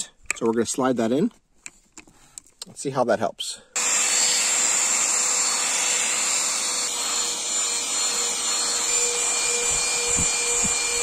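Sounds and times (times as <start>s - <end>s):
handheld vacuum cleaner running: 3.8s - 11.0s.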